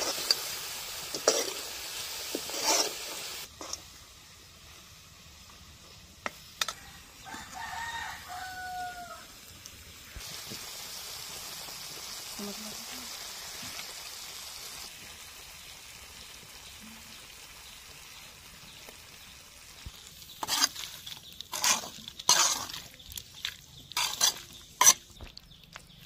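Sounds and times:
metal ladle scraping a pan: 0.0s - 3.9s, 20.3s - 25.1s
curry sizzling in a wok: 0.0s - 26.0s.

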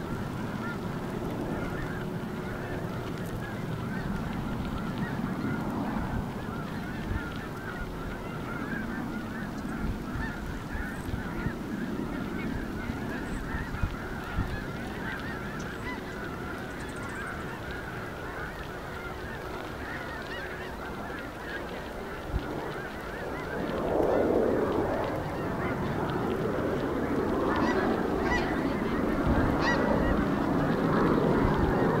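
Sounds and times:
flock of birds calling: 0.0s - 32.0s.

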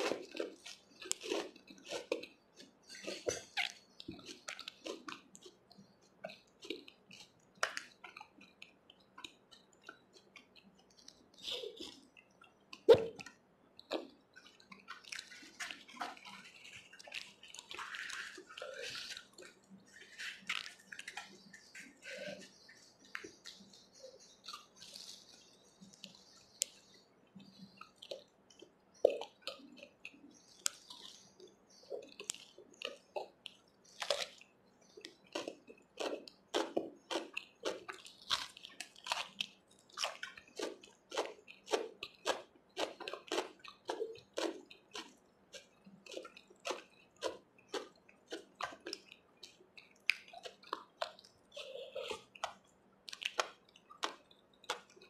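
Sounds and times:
wet chewing: 0.0s - 55.0s.

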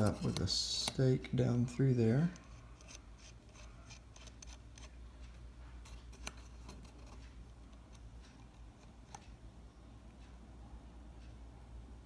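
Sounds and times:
small metallic clicks and scrapes: 0.0s - 9.4s.

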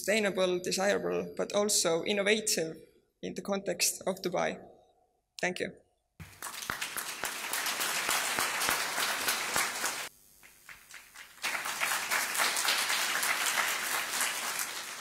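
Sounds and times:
audience clapping: 6.2s - 15.0s.

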